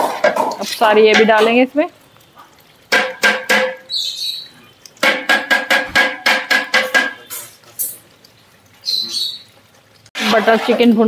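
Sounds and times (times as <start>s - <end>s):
metal bowl knocking on pot: 0.0s - 1.7s, 2.9s - 3.9s, 5.0s - 7.5s.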